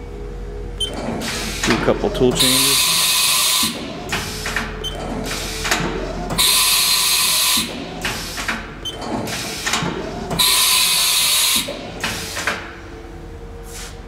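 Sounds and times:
tool changer arm clicks and clunks: 3.6 - 6.4.

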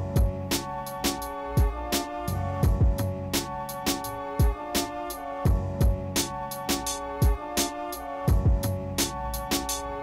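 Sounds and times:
instrumental beat music: 0.0 - 10.0.

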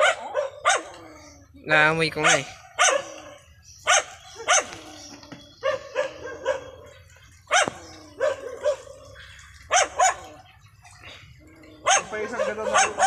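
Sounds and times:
dog barking: 0.0 - 1.0, 2.2 - 4.8, 5.6 - 9.0, 9.7 - 10.4, 11.8 - 13.0.

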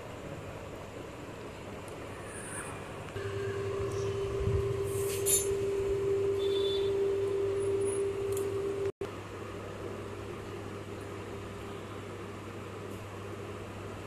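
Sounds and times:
steady machine hum: 0.0 - 14.0
constant mid-pitched tone: 3.2 - 8.9.

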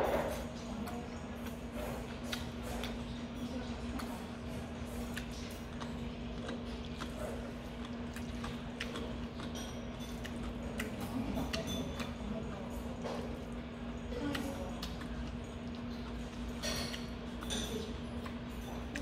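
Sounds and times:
chewing: 0.0 - 19.0
steady low hum: 0.0 - 19.0
chopsticks clicking against bowl: 7.8 - 12.3.

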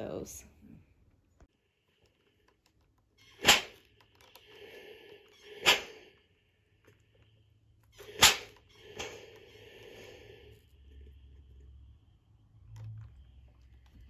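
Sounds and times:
steam iron hissing steam: 8.0 - 10.5.

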